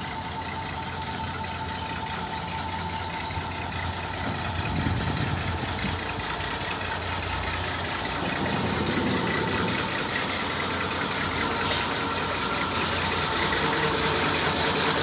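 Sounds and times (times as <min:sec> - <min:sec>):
diesel engine idling: 0:00.0 - 0:15.0
brief hiss: 0:11.6 - 0:12.0.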